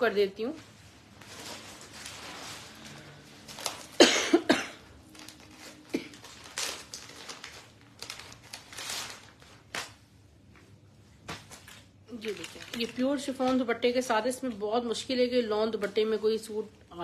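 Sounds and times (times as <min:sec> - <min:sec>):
person coughing: 0:04.0 - 0:04.9, 0:05.9 - 0:06.2.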